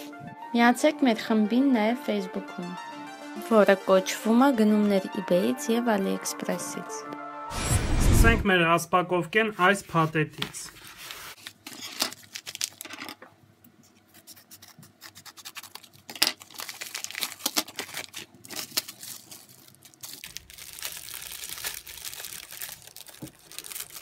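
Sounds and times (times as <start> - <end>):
plastic packaging crinkling: 10.7 - 13.3, 15.2 - 24.0.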